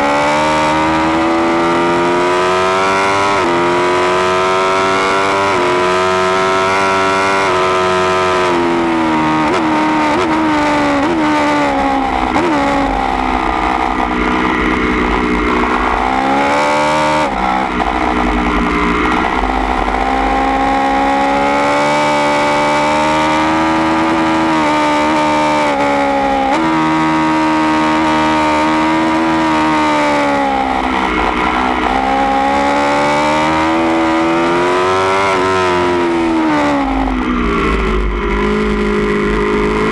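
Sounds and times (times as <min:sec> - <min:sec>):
motorcycle engine revving: 0:00.0 - 0:39.9
low rumble: 0:11.6 - 0:21.4.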